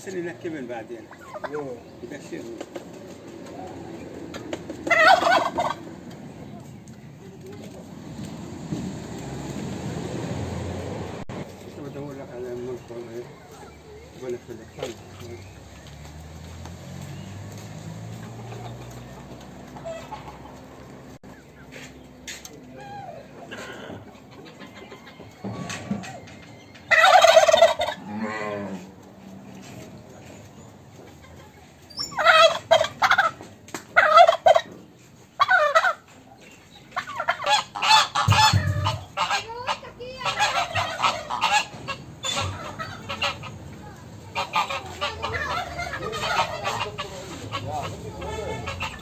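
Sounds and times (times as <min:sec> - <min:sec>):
turkeys gobbling: 0:00.8 - 0:06.7, 0:18.1 - 0:21.8, 0:22.7 - 0:28.2, 0:29.8 - 0:49.0.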